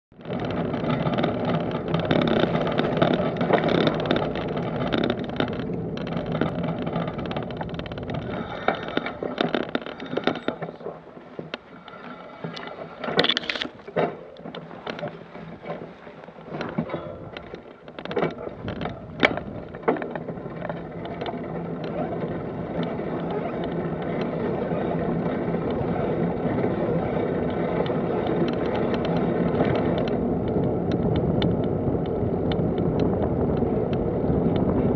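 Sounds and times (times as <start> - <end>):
sharp clicks and knocks: 0.1 - 24.4, 27.4 - 34.9
rolling rumble on gravel: 0.1 - 34.9.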